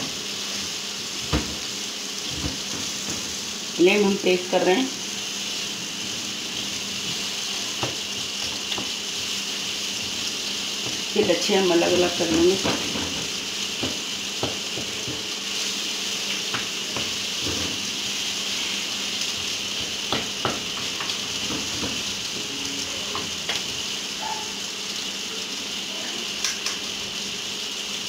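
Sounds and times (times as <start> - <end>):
onions sizzling in hot oil: 0.0 - 28.0
spatula clicking against pan: 26.4 - 26.8.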